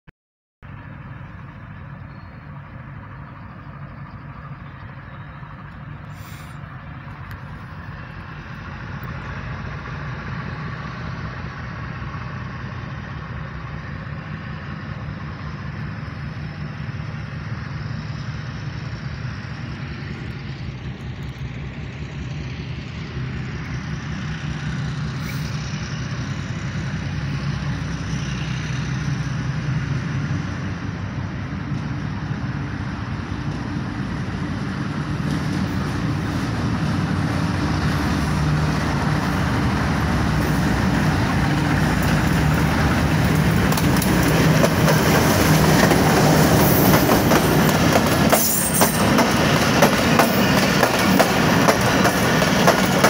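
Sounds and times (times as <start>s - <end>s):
locomotive diesel engine rumble: 0.6s - 53.0s.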